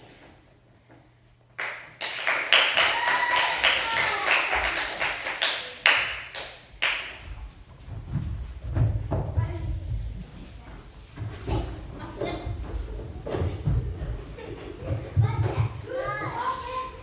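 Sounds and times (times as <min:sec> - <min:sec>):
small audience applauding: 0:01.6 - 0:07.4.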